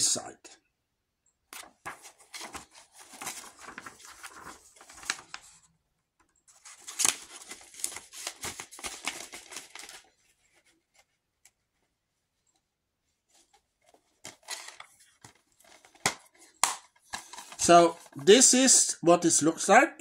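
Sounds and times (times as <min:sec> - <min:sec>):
plastic case rustling and scraping: 0:13.5 - 0:17.6.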